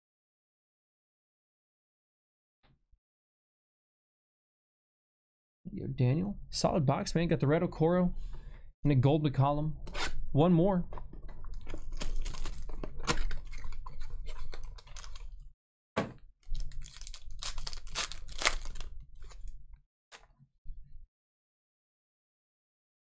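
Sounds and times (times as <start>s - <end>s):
foil wrapper crinkling and tearing: 11.6s - 15.4s, 16.5s - 19.6s.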